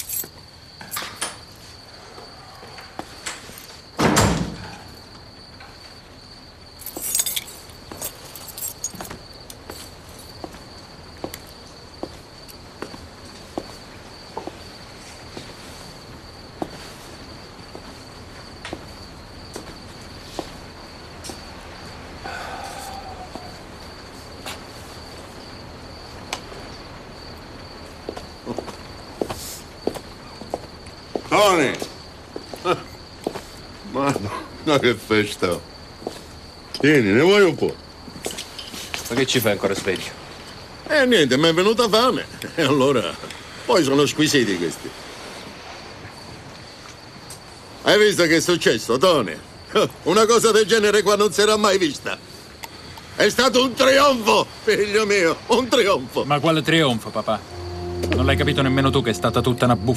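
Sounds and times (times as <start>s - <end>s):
keys jingling: 0.0s - 0.3s, 6.8s - 9.2s
crickets chirping: 0.0s - 59.9s
wooden door thudding shut: 4.0s - 4.7s
light footsteps: 6.8s - 15.9s
faint steady high tone: 57.2s - 59.9s.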